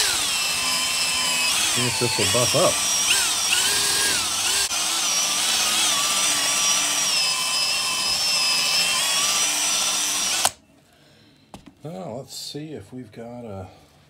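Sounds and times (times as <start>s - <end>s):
electric drill motor whine: 0.0s - 10.6s.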